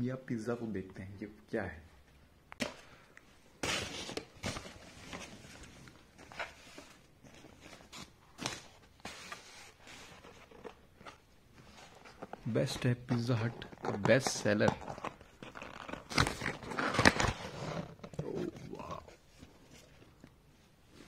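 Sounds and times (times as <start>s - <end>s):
paper rustling and crinkling: 3.6s - 20.2s.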